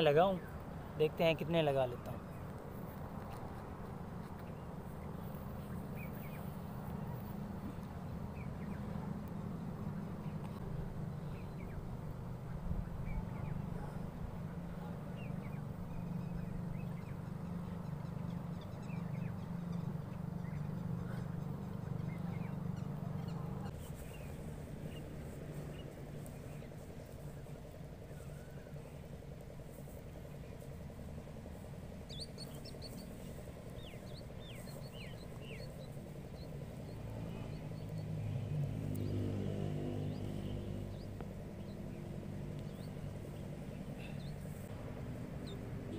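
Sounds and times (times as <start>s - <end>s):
distant traffic rumble: 0.0s - 45.9s
vehicle engine passing by: 5.1s - 29.1s, 29.8s - 45.9s
bird chirps: 31.8s - 38.1s.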